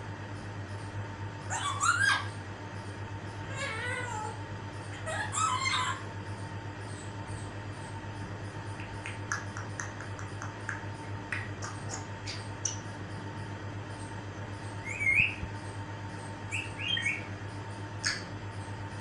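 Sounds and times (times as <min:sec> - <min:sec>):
parrot whistling: 0:01.5 - 0:02.3, 0:04.9 - 0:06.0, 0:14.8 - 0:15.4, 0:16.5 - 0:17.3
parrot clicks and chirps: 0:08.7 - 0:13.0, 0:18.0 - 0:18.7.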